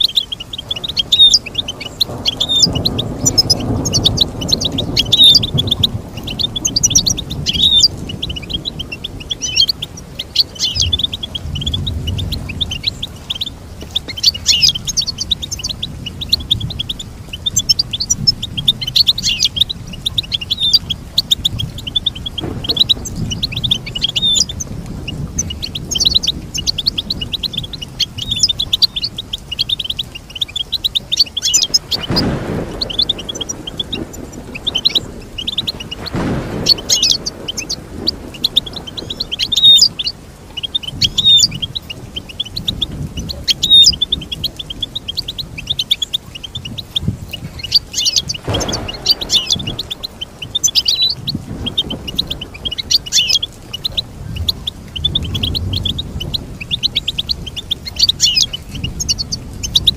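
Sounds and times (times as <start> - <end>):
goldfinch singing: 0.0 - 59.9
burst of noise: 48.4 - 51.0.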